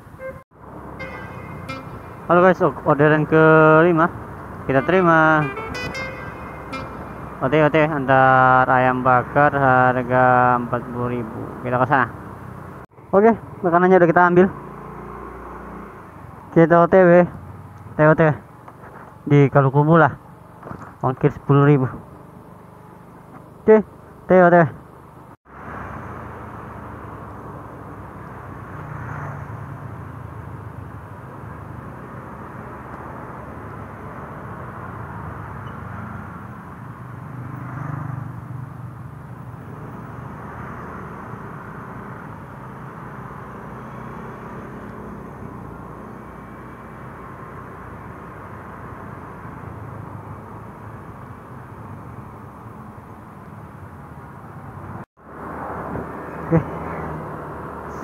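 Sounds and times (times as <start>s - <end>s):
road and wind noise: 0.0s - 58.0s.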